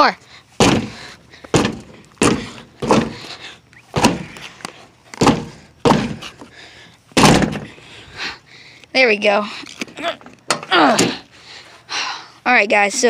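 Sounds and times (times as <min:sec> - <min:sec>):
car door slamming: 0:00.6 - 0:01.0, 0:01.6 - 0:03.2, 0:04.0 - 0:04.3, 0:05.2 - 0:06.2, 0:07.2 - 0:07.7.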